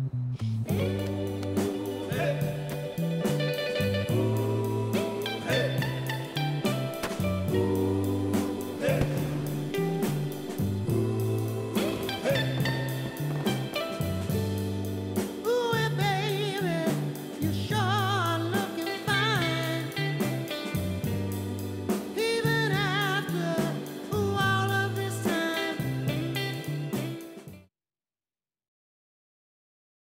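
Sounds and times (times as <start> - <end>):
stepping bass line: 0.0 - 15.2
sung vocal with vibrato: 0.5 - 20.6, 21.4 - 26.6
steady drum beat: 0.7 - 24.8.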